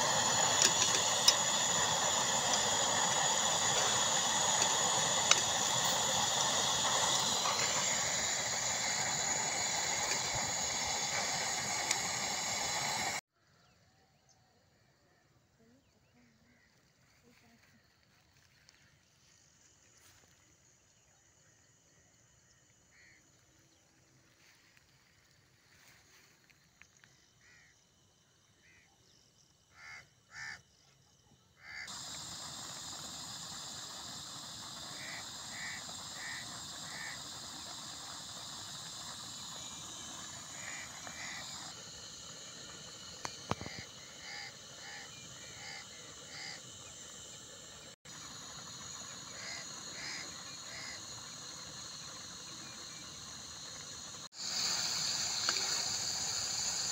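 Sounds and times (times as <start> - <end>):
gas stove burner hissing: 0.0 - 13.2, 31.6 - 56.9.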